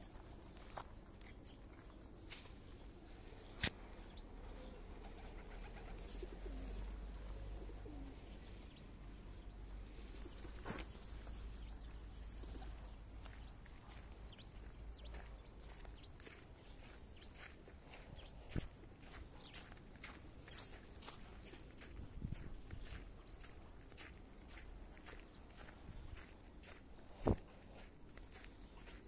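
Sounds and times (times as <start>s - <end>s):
pigeons cooing: 4.3s - 8.7s.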